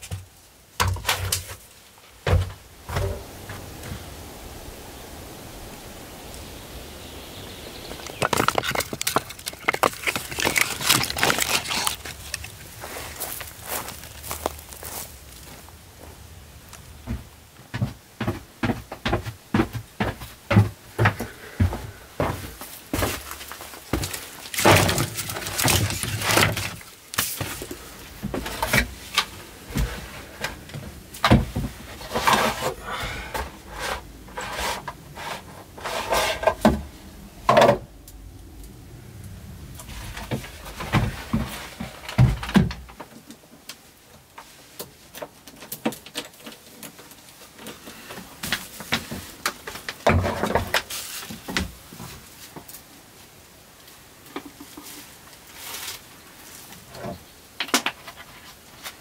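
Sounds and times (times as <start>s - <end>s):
wood and gear knocking: 7.9s - 12.6s.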